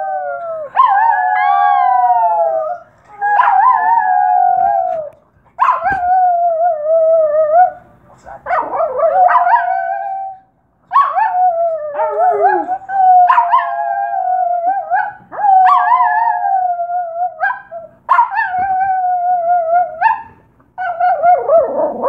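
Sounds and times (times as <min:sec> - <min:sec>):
small dog howling: 0:00.0 - 0:05.1, 0:11.0 - 0:20.2, 0:20.8 - 0:22.0.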